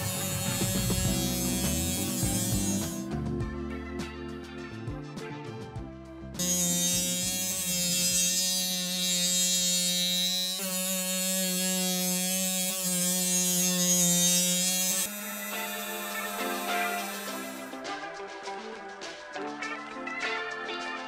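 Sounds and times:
rotary tool grinding: 0.0s - 3.1s, 6.4s - 17.8s
background music: 0.0s - 9.2s, 14.2s - 21.0s.

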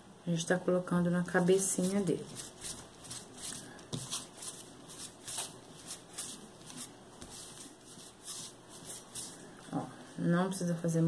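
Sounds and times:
hand rubbing paste on tabletop: 1.3s - 9.5s.

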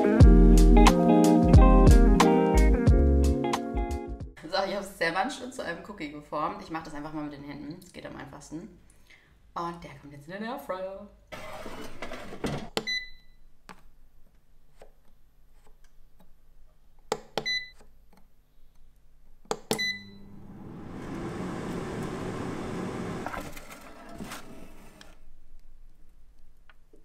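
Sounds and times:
air fryer fan running: 20.2s - 23.5s.

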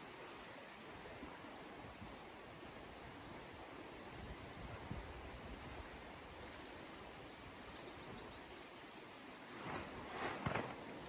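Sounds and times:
river flowing: 0.0s - 11.0s
tarp rustling and crinkling: 9.4s - 11.0s.

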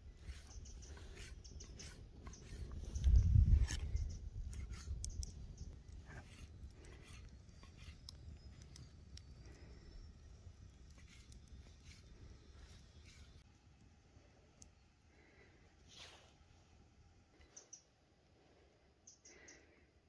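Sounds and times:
knife scrapes: 0.2s - 5.0s, 6.1s - 8.1s.

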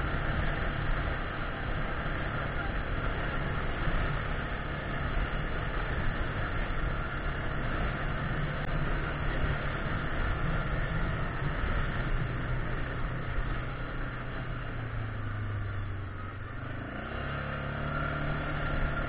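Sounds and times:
atv engine running: 0.0s - 19.0s.

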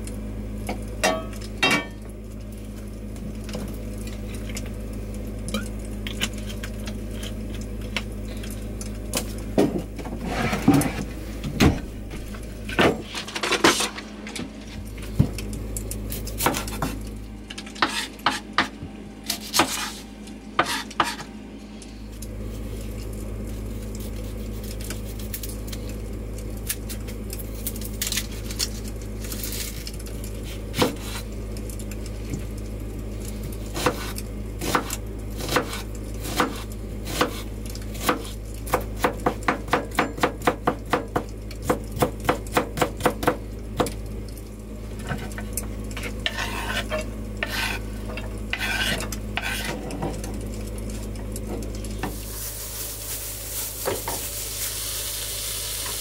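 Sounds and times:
steady low hum: 0.0s - 56.0s
kitchen utensils clinking: 1.0s - 2.0s.

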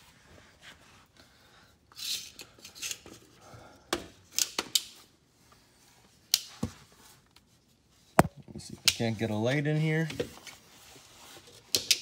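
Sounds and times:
handling clicks and knocks: 8.2s - 8.4s.

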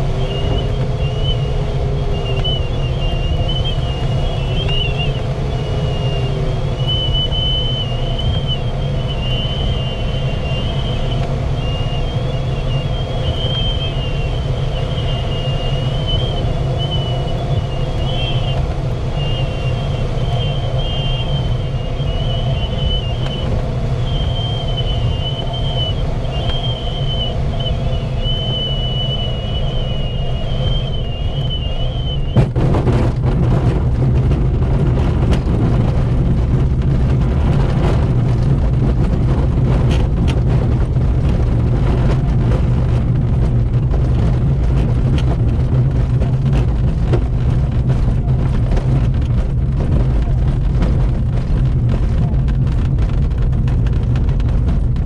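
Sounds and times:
airflow rushing in cockpit: 0.0s - 55.0s
glider rolling over grass rattling: 30.8s - 55.0s.

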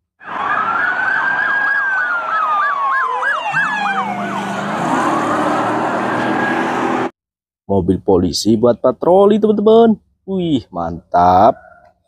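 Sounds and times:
police siren wailing: 0.2s - 7.1s
police siren yelping: 0.2s - 7.1s
traffic noise: 0.2s - 7.1s.

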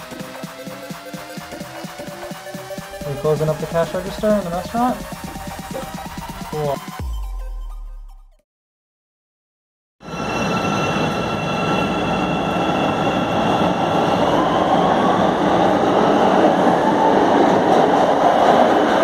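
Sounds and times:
subway train wheels rumbling: 0.0s - 6.5s, 10.0s - 19.0s
train whine rising in pitch: 0.0s - 7.1s, 10.0s - 19.0s
high tones: 1.4s - 7.9s.

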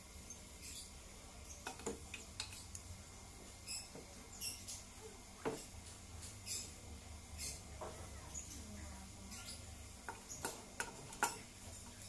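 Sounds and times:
high squeaky chirps: 3.6s - 4.9s.

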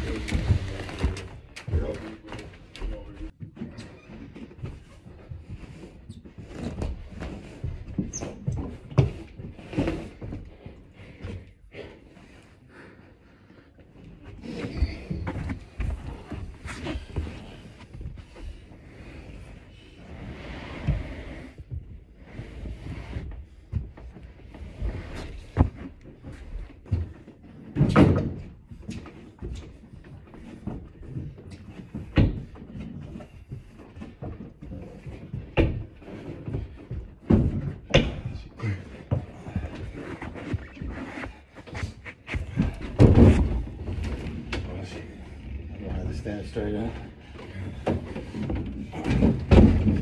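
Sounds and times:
thumps and knocks on staircase: 0.0s - 11.5s, 23.2s - 44.7s, 47.6s - 50.0s.

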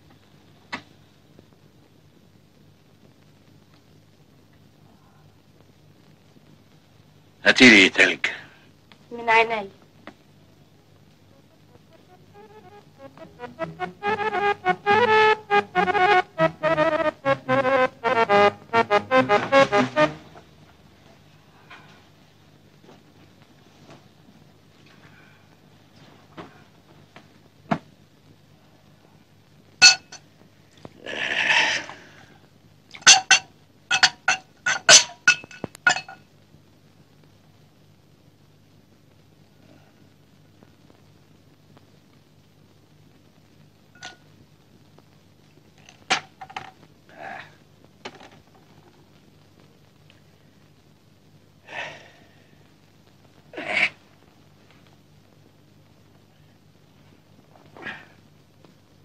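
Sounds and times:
glass clinking: 29.8s - 30.2s
glass clinking on glass table: 29.8s - 30.2s, 33.1s - 36.2s.

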